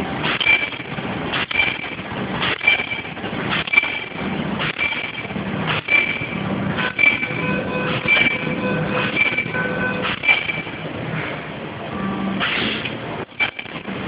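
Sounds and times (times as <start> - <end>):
continuous machine noise: 0.0 - 14.0
machine head striking with a ring: 0.3 - 10.8.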